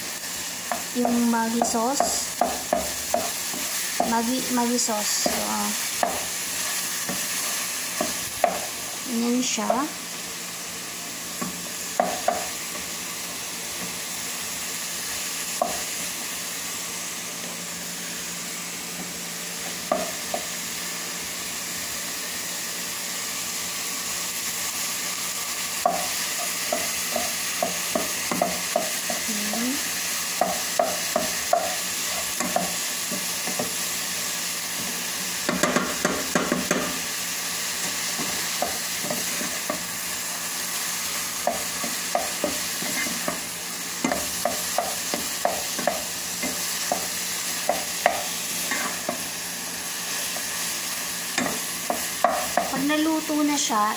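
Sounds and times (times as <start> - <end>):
meat sizzling in frying pan: 0.0 - 53.9
spatula tapping pan: 0.6 - 4.3, 5.1 - 6.3, 7.0 - 8.7, 11.4 - 12.9, 15.6 - 15.9, 19.7 - 20.5, 25.8 - 29.7, 30.3 - 33.8, 35.4 - 37.0, 37.8 - 39.9, 41.4 - 49.3, 51.3 - 52.8.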